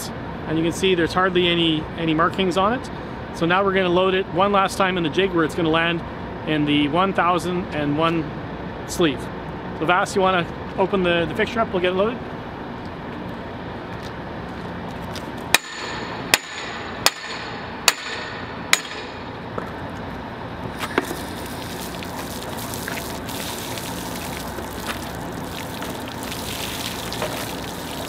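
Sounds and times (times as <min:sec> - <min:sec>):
hammer striking metal: 0:15.6 - 0:19.4
water gushing onto concrete: 0:20.8 - 0:28.0.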